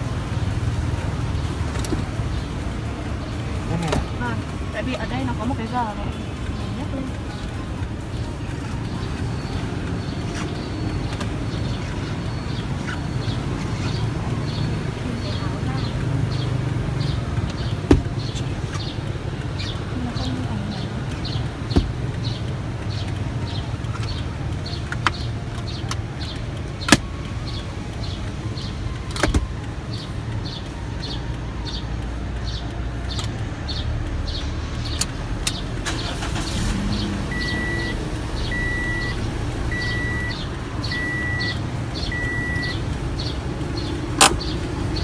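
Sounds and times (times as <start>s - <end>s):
low car cabin rumble: 0.0s - 33.6s, 34.9s - 45.0s
dashboard warning beeps: 4.2s - 16.4s, 37.2s - 42.9s.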